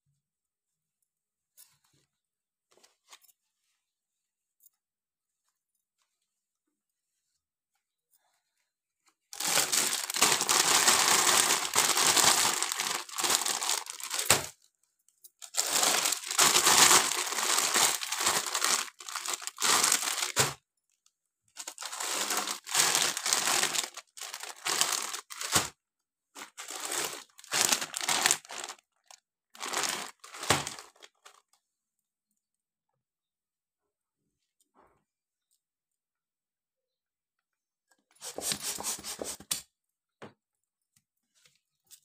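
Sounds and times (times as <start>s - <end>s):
plastic bags crinkling: 9.3s - 14.6s, 15.4s - 20.6s, 21.6s - 25.8s, 26.4s - 31.5s.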